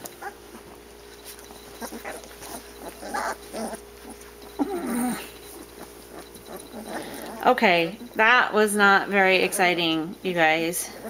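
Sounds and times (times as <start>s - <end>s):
puppy whining: 0.0s - 8.4s
puppies whimpering and grunting: 0.0s - 11.0s.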